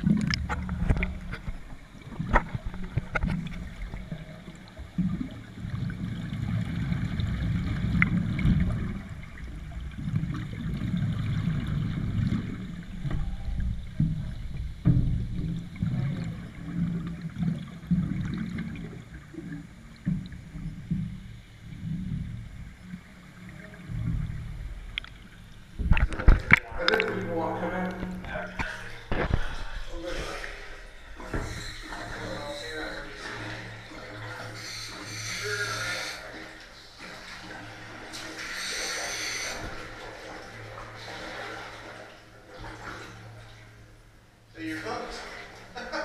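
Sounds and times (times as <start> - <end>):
bubbles gurgling underwater: 0.0 - 25.1
regulator breath hiss: 34.6 - 36.3, 38.5 - 39.6.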